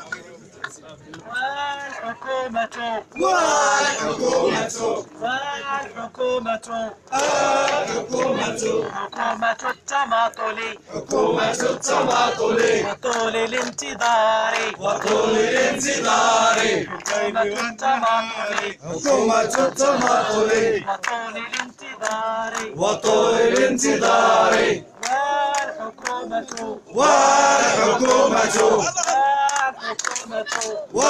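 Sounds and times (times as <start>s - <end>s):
crowd chanting: 1.2s - 31.0s
hand clapping: 13.0s - 15.2s, 16.5s - 17.8s, 18.5s - 18.7s, 19.4s - 20.3s, 20.9s - 22.8s, 24.5s - 26.7s, 28.9s - 31.0s.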